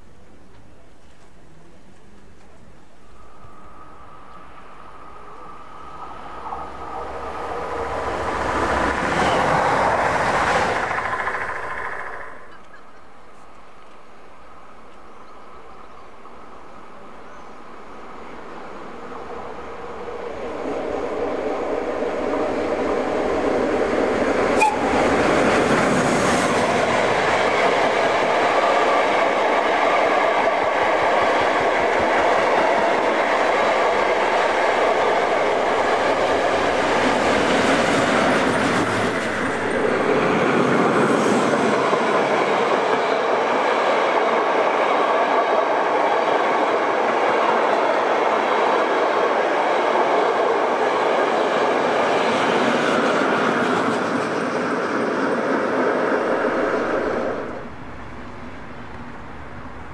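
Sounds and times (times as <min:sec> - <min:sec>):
train wheels clattering on track: 0:06.2 - 0:14.1, 0:22.3 - 0:57.6.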